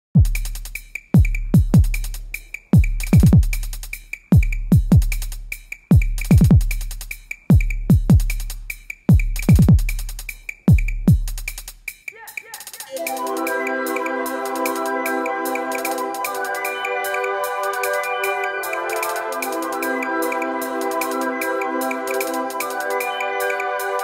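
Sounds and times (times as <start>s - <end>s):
drum-machine bass hits: 0.1s - 11.8s
fast ticking hi-hats: 0.2s - 24.0s.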